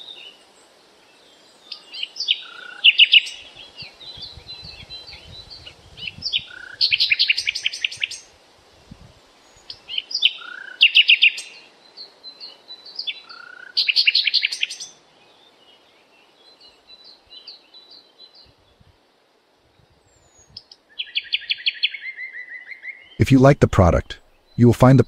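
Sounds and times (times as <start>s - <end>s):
songbird singing trills: 0.0s - 8.3s, 9.4s - 18.9s, 20.1s - 25.0s
bird chirps: 1.7s - 8.3s, 9.5s - 15.0s, 20.2s - 25.0s.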